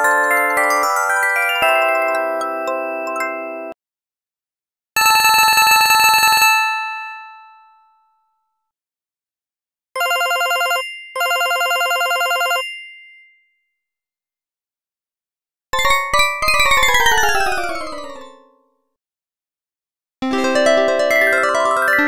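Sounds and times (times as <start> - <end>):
trilling electronic phone ringtone: 10.0 - 12.7.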